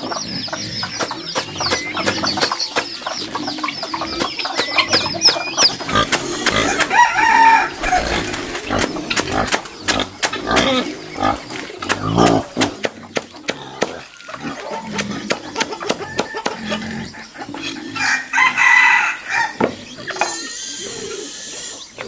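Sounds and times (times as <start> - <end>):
chicks peeping: 0.0 - 22.0
rooster crowing: 6.6 - 8.4, 18.0 - 19.6.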